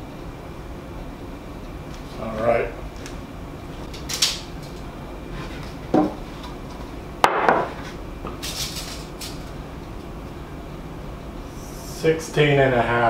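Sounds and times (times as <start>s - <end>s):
tape measure knocking on workbench: 7.2s - 7.8s.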